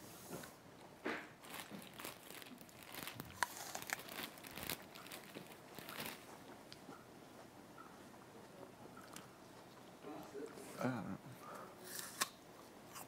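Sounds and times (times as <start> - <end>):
plastic packaging crinkling: 1.3 - 6.5.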